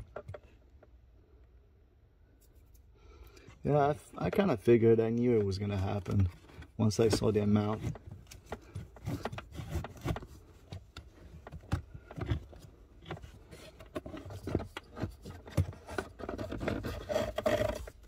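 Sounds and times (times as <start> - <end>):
filter frame scraping plastic housing: 5.3 - 18.0.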